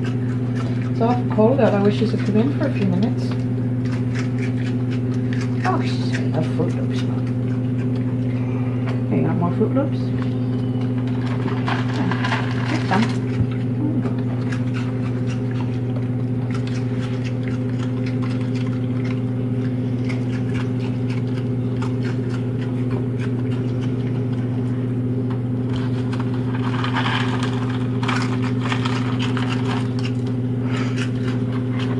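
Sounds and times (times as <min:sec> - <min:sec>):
animal crunching cereal: 0:00.0 - 0:31.9
low machine hum: 0:00.0 - 0:31.9.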